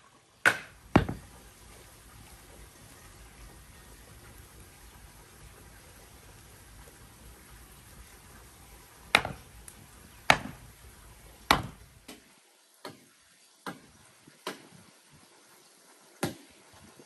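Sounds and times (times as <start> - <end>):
campfire popping and cracking: 0.4 - 4.8, 6.2 - 12.1.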